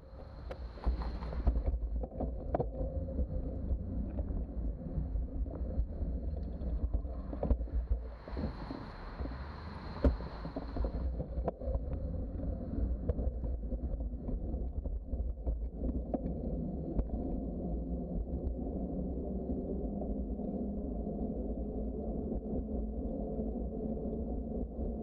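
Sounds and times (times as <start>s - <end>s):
wind rumbling on microphone: 0.0s - 25.0s
steady hiss: 7.8s - 11.6s.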